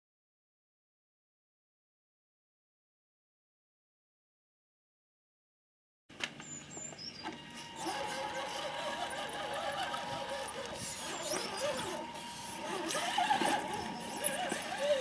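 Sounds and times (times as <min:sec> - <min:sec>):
electric motor whining: 0:07.2 - 0:15.0
steady high tone: 0:07.4 - 0:15.0.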